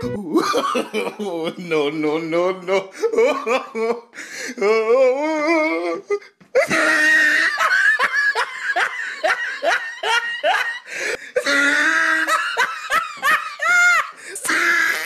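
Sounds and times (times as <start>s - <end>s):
person laughing hard: 0.0s - 1.8s, 2.8s - 4.2s, 6.6s - 15.0s.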